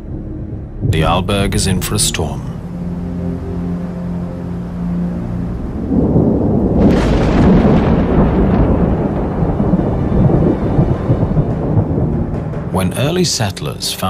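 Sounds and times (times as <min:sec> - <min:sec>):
low soundtrack music chord: 0:00.0 - 0:14.0
thunder rumbling and cracking: 0:05.4 - 0:13.8.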